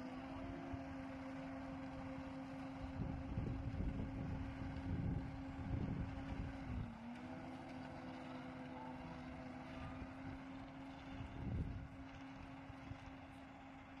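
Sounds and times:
diesel engine droning: 0.0s - 14.0s
wind rumbling on microphone: 2.9s - 6.9s, 11.1s - 13.1s.

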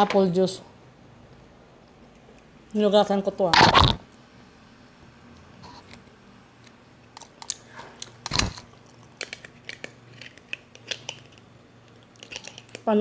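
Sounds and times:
eating and handling clicks: 5.8s - 12.9s.

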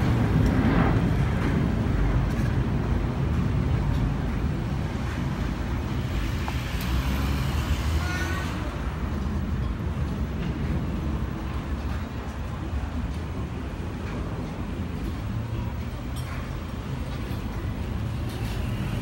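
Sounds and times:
jet rumble: 0.0s - 6.6s.

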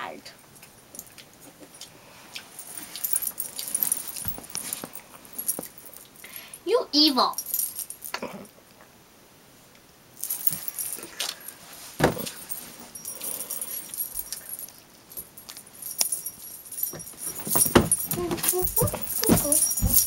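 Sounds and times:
small metal pieces jingling: 2.6s - 6.6s, 7.3s - 8.1s, 10.2s - 20.0s.

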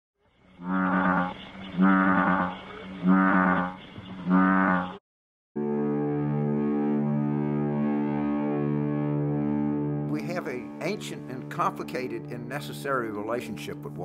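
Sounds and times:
bullfrog croaking: 0.5s - 5.0s
sustained music drone: 5.6s - 13.9s.

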